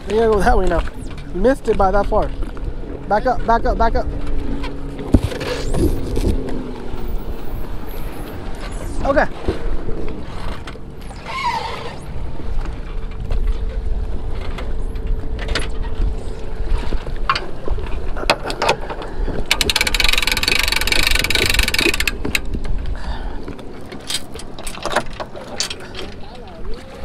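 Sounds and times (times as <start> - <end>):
wind rumbling on microphone: 0.0 - 27.0
winch ratcheting: 17.3 - 22.8.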